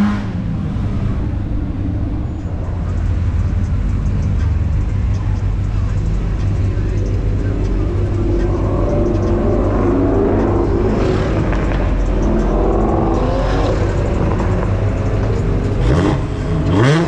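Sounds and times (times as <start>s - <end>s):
car engines rumbling: 0.0s - 17.0s
engine revving sharply: 7.3s - 17.0s.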